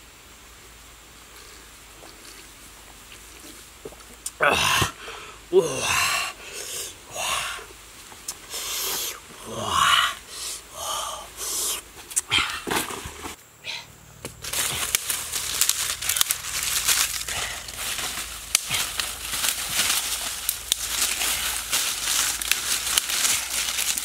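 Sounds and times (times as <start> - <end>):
man's wheezy breathing sounds: 4.5 - 7.7, 8.4 - 12.7, 17.1 - 19.4
dry leaves crackling: 14.2 - 24.0.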